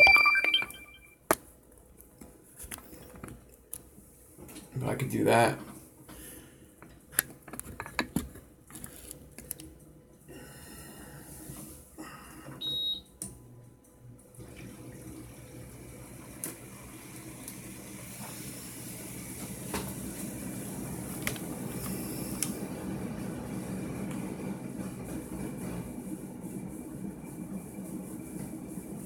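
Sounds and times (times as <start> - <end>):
control panel beep: 0.0 - 1.1
air conditioner humming: 0.0 - 29.0.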